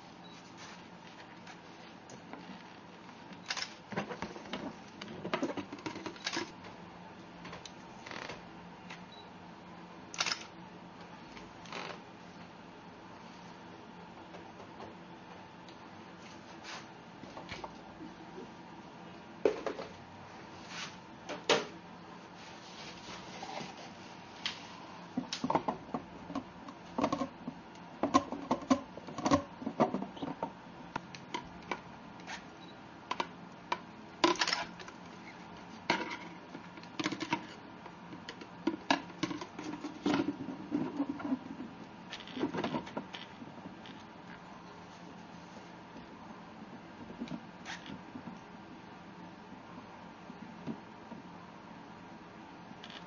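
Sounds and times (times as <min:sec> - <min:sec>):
faint steady hum: 0:00.0 - 0:53.0.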